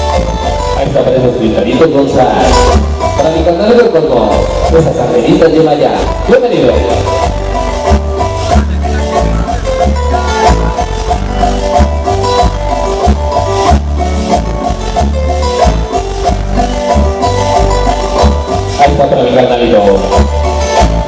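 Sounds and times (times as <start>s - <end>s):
heavy pulsing bass line: 0.0s - 21.0s
loud latin dance music: 0.0s - 21.0s
repeated keyboard notes: 0.0s - 21.0s
steady percussion: 0.0s - 21.0s.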